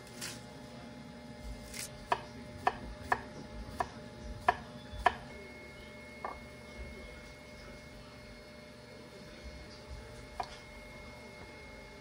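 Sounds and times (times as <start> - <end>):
knife chopping on wooden board: 1.6 - 5.3.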